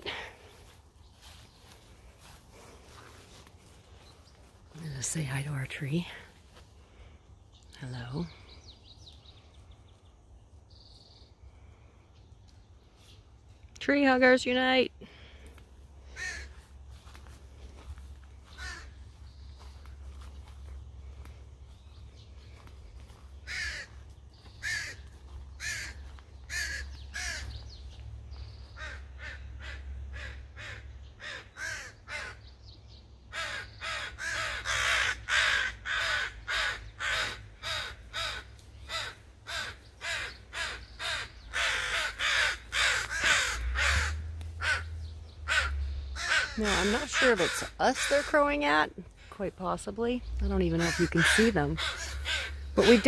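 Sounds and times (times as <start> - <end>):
crows cawing in alarm: 16.0 - 17.0, 17.8 - 19.7, 22.5 - 27.6, 28.6 - 32.5, 33.3 - 48.8, 50.7 - 53.0.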